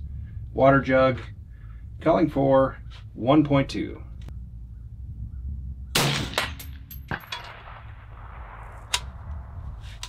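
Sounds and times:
suppressed rifle shot echoing: 0:05.9 - 0:09.5.

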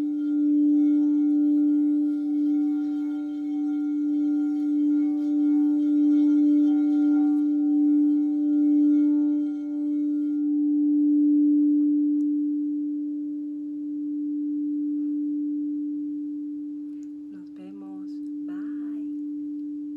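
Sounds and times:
crystal singing bowl ringing: 0:00.0 - 0:12.6.

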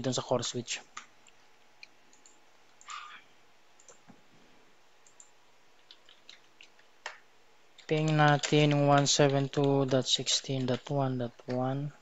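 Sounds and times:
computer mouse clicks: 0:01.0 - 0:03.0, 0:03.8 - 0:04.2, 0:05.0 - 0:07.2.

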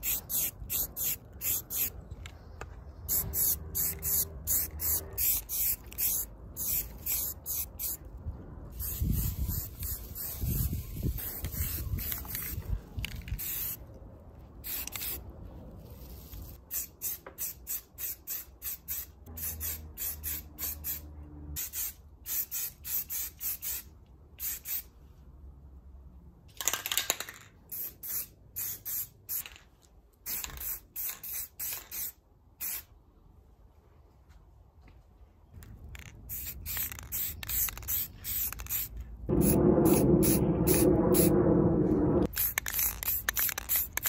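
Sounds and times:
spray paint can hissing: 0:00.0 - 0:02.0, 0:03.0 - 0:08.0, 0:08.7 - 0:13.8, 0:14.6 - 0:15.2, 0:15.9 - 0:21.0, 0:21.6 - 0:24.9, 0:27.7 - 0:29.6, 0:30.2 - 0:32.9, 0:35.9 - 0:41.3, 0:42.2 - 0:44.0.

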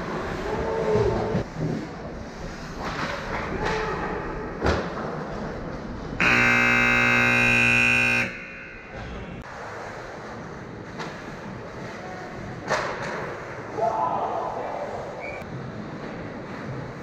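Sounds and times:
loud horn blast: 0:06.2 - 0:09.4.

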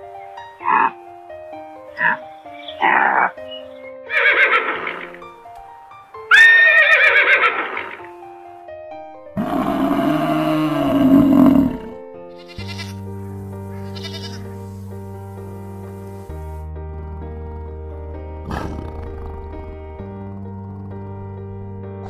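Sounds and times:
background music: 0:00.0 - 0:22.0
animal calls: 0:00.2 - 0:01.0, 0:01.9 - 0:05.2, 0:13.7 - 0:14.8
bison bellowing: 0:09.4 - 0:12.0, 0:15.4 - 0:22.0.

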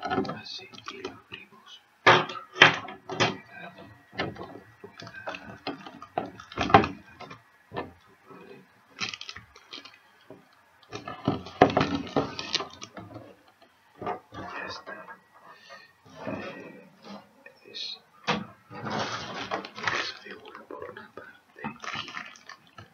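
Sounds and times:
plastic packaging crackling: 0:03.0 - 0:07.7, 0:08.8 - 0:13.6, 0:18.7 - 0:22.9.

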